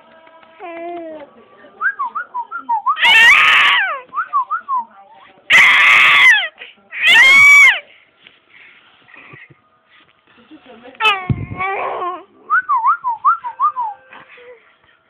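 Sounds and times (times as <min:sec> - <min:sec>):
baby screaming: 0:03.0 - 0:04.0, 0:05.5 - 0:07.8.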